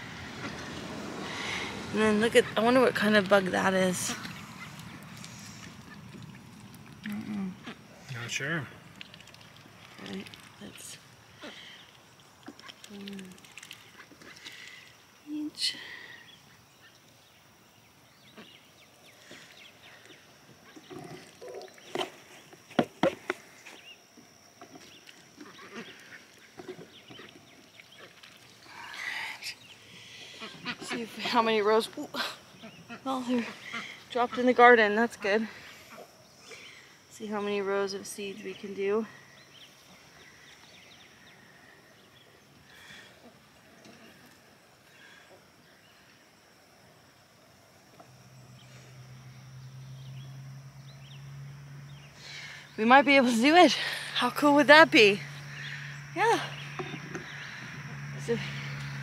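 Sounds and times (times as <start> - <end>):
low distant motor hum: 0.0 - 59.0
high insect buzz: 9.7 - 59.0
farm animals calling: 25.4 - 28.3, 32.6 - 36.1.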